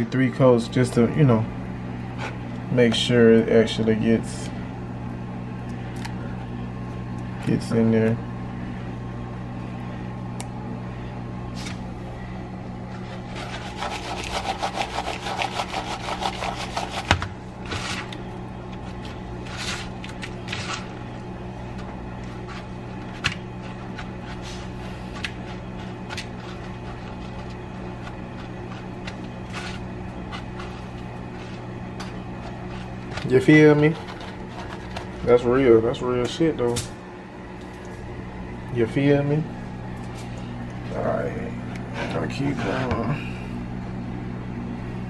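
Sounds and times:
steady low hum: 0.0s - 45.0s
hands rubbing and scraping in bowls: 12.8s - 21.1s, 21.7s - 35.5s.

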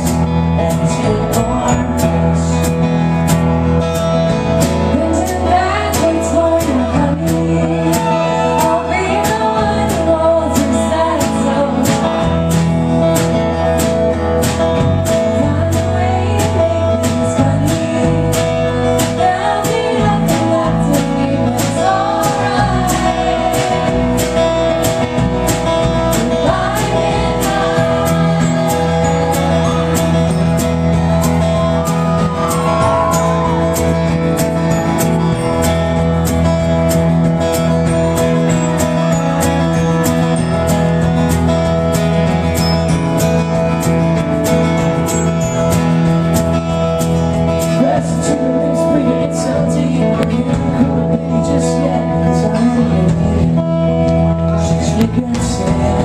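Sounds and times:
person singing: 0.0s - 2.7s, 4.9s - 12.3s, 47.6s - 53.8s, 54.5s - 56.0s
strummed acoustic guitar: 0.0s - 56.0s
steady percussion beat: 16.5s - 48.4s.

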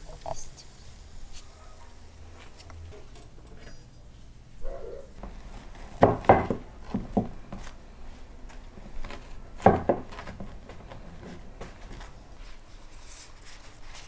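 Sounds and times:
machete chopping food: 5.2s - 7.8s, 8.5s - 12.1s
knocking on wooden tabletop: 6.0s - 7.6s, 9.6s - 10.5s.

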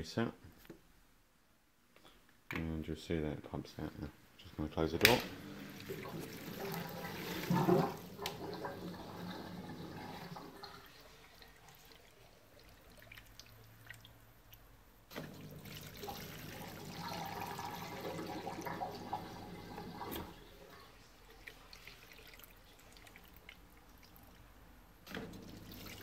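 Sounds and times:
dishwasher drain pump running: 5.0s - 11.8s, 15.1s - 20.5s, 25.0s - 26.0s
water gurgling: 5.3s - 14.6s, 15.2s - 24.4s, 25.3s - 26.0s.

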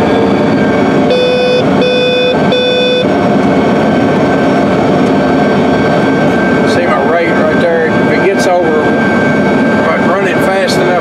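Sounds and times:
tractor engine running: 0.0s - 11.0s
electronic warning beeps: 1.1s - 3.1s.

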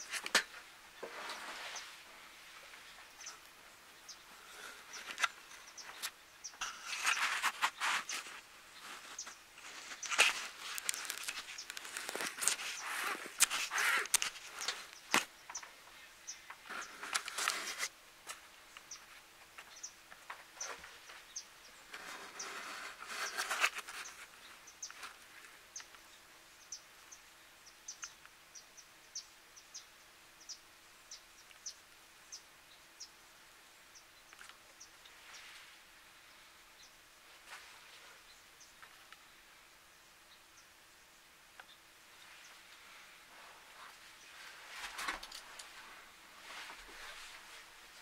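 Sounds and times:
rustling: 0.0s - 26.0s, 37.2s - 39.3s, 41.6s - 48.0s.

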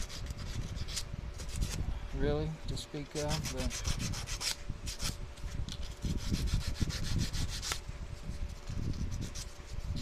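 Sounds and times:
sandpaper rubbing on metal: 3.2s - 5.2s, 5.8s - 10.0s.

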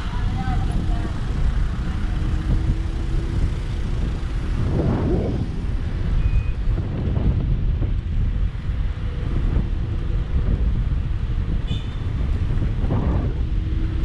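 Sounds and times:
road noise: 0.0s - 14.0s
wind rumbling on microphone: 0.0s - 14.0s
high beep: 6.2s - 6.6s.

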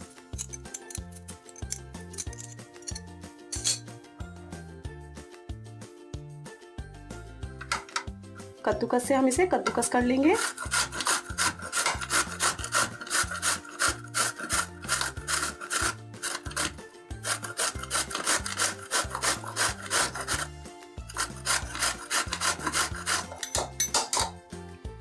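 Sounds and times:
mango grated on metal grater: 10.1s - 23.7s.

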